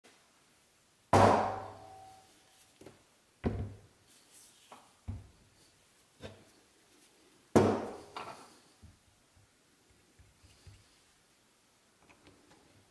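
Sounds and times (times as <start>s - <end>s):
heavy metal thud with ring: 1.2s - 2.2s.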